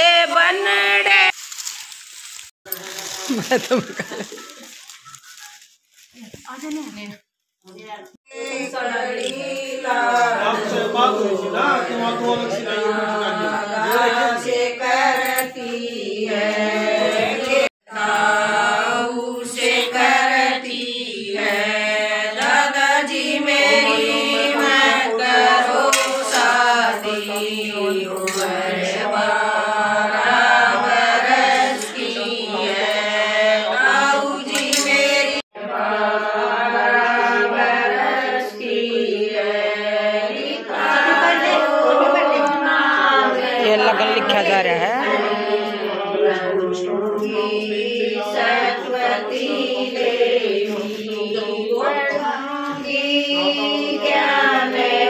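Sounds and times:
women singing folk song: 8.3 - 55.0.

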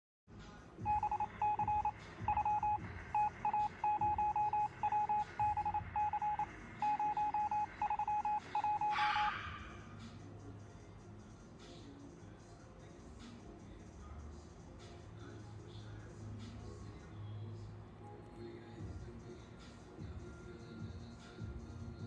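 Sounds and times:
rapid electronic beeps: 0.8 - 9.3.

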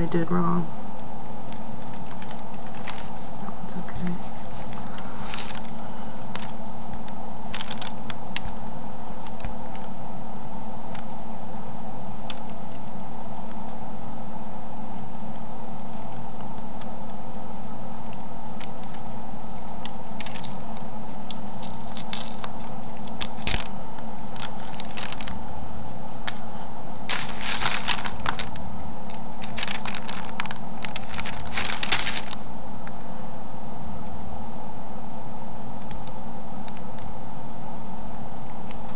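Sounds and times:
steady low hum: 0.0 - 38.9
paper crackling and rustling: 1.2 - 10.0, 14.8 - 32.5.

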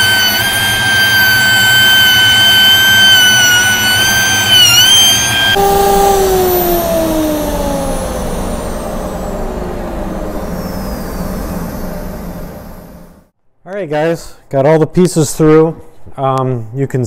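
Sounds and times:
router whining and winding down: 0.0 - 13.1
low hum and rush: 4.5 - 13.3.

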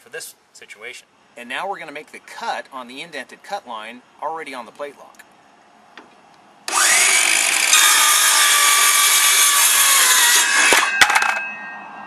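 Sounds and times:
circular saw cutting board: 6.7 - 11.4.

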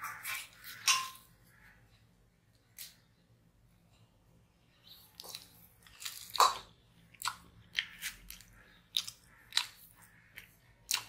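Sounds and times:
crisp crackles of chewing: 5.0 - 11.0.

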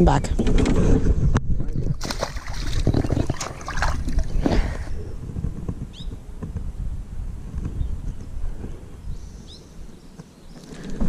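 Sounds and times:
fish splashing in water: 1.9 - 4.9.

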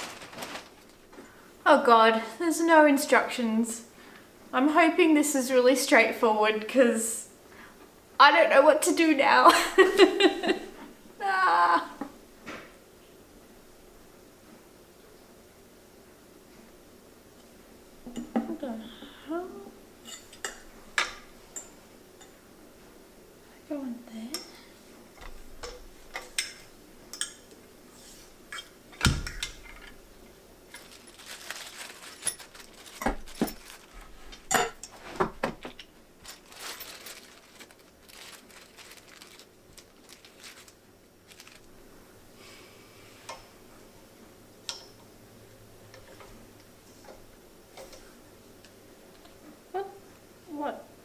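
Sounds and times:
rustling: 0.0 - 1.4, 30.7 - 41.9
screws and washers clinking: 30.7 - 33.8.

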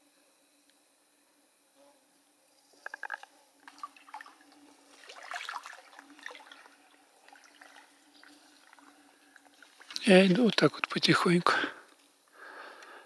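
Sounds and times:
water splashing around wading legs: 3.0 - 10.8.

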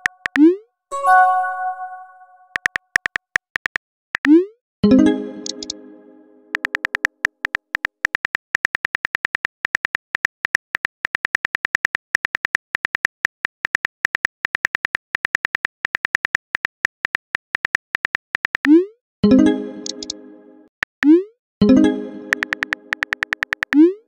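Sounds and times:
short multi-tone chime: 0.9 - 2.5
rapid keyboard tap clicks: 2.6 - 4.3, 6.6 - 18.7, 22.3 - 23.8.

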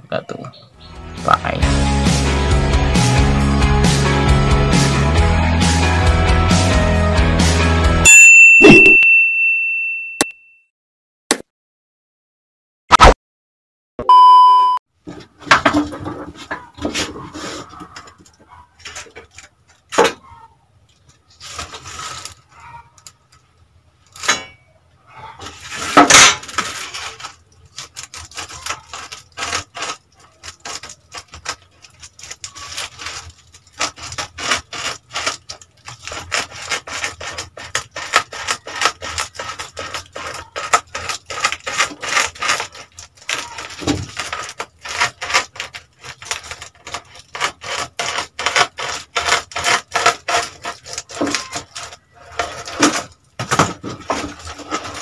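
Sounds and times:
foil crinkling: 16.0 - 20.0, 20.9 - 24.3, 25.4 - 55.0.

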